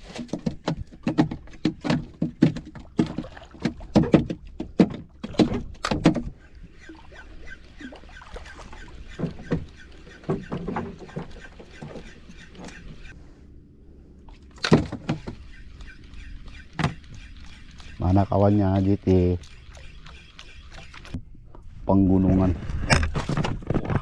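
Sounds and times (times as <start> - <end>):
water lapping: 0.0 - 13.5, 14.1 - 21.2.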